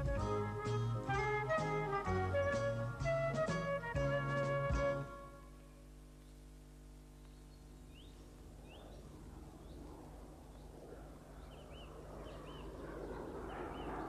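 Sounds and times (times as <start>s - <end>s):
outdoor background noise: 0.0s - 14.0s
birds chirping: 6.1s - 14.0s.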